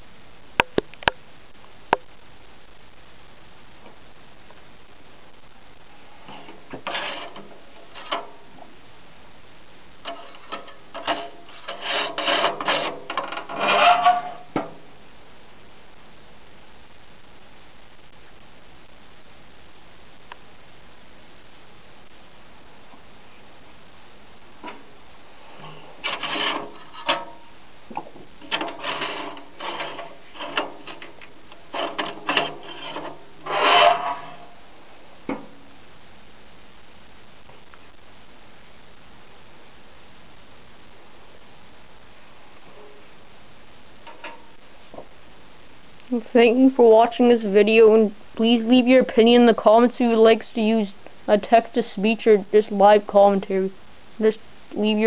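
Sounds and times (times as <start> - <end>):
card and metal holder scraping: 6.3 - 8.4, 10.1 - 14.7, 25.6 - 27.4, 28.4 - 34.5.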